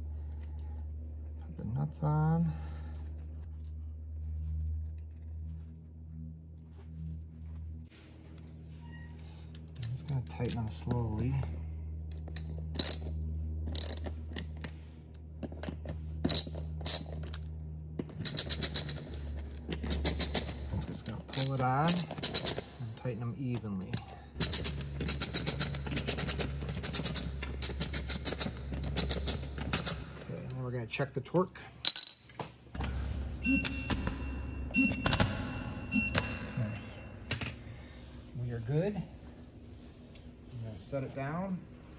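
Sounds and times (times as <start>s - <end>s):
steady low hum: 0.0s - 41.9s
ratchet wrench clicking: 18.2s - 20.6s, 24.4s - 30.1s
torque wrench beeping: 24.4s - 30.2s, 33.4s - 37.5s.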